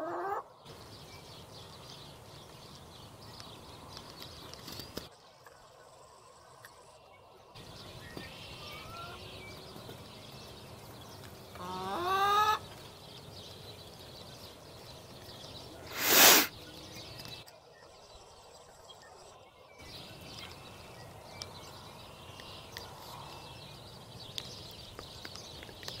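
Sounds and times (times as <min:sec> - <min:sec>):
peafowl call: 0:00.0 - 0:00.5, 0:08.2 - 0:09.3, 0:11.6 - 0:12.6, 0:15.9 - 0:16.5
rush of hiss-like noise: 0:15.9 - 0:16.5.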